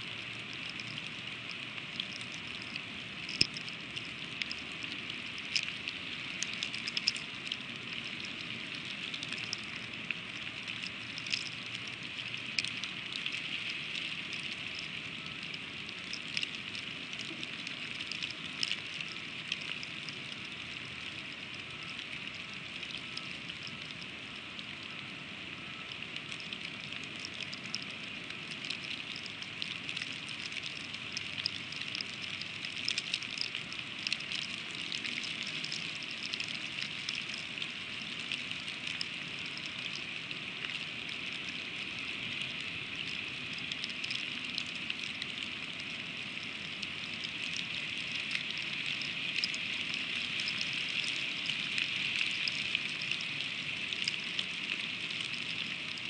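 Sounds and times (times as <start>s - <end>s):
freezing rain hissing: 0.0s - 56.0s
ice pellets ticking: 0.5s - 8.5s, 9.1s - 13.4s, 26.3s - 40.1s.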